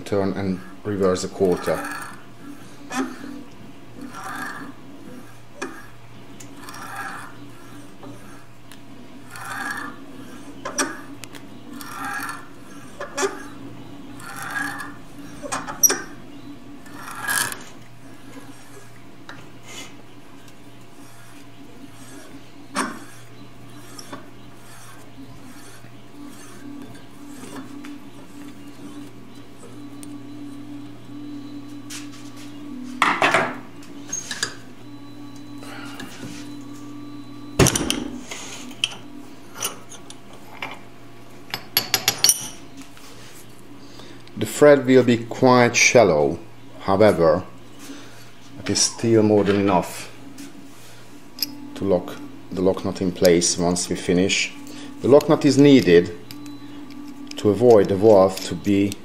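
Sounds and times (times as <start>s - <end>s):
die scraping metal thread: 0.0s - 31.3s, 51.3s - 59.0s.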